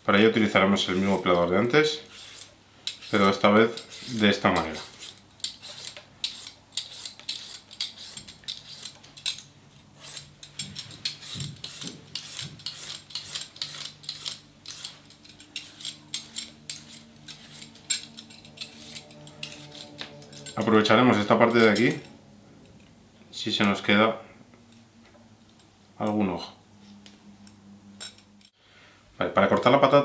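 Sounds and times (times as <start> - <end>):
peeler scraping potato: 0.8 - 22.1.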